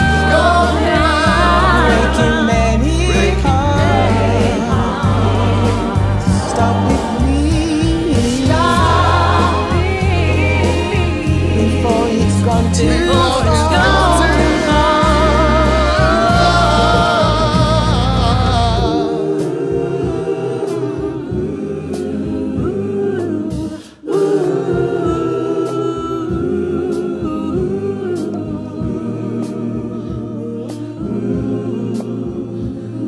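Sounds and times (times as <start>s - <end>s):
band with strings: 0.0s - 23.6s
gospel choir singing: 0.0s - 33.0s
lead singers with vibrato: 0.0s - 33.0s.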